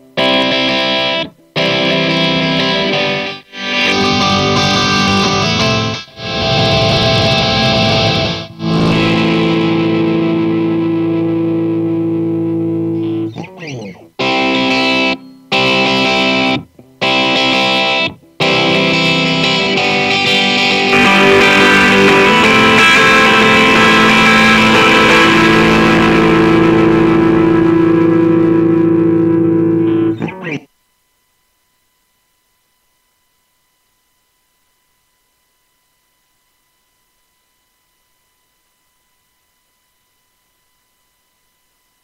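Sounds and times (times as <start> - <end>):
distorted electric guitar chords: 0.0 - 30.7.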